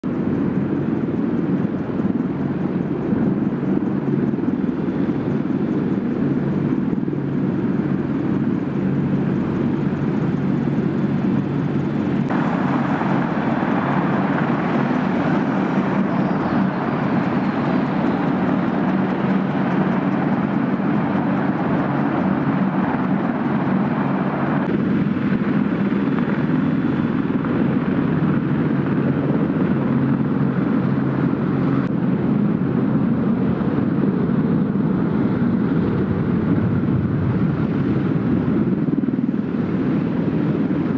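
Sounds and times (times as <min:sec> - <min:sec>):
helicopter rotors beating: 0:00.0 - 0:40.9
turboshaft engines running: 0:00.0 - 0:40.9.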